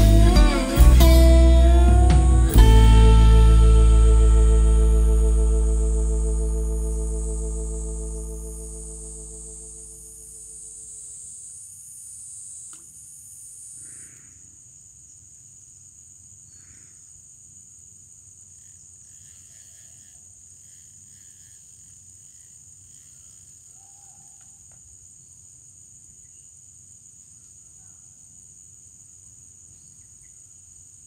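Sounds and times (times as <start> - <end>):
high-pitched insect chorus: 0.0 - 31.0
faint click: 12.7 - 12.9.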